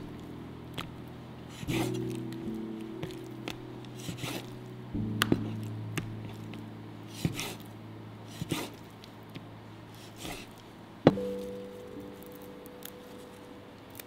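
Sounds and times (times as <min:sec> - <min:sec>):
background music with low notes: 0:00.0 - 0:14.0
knife slicing through meat: 0:04.0 - 0:04.5, 0:08.3 - 0:08.8.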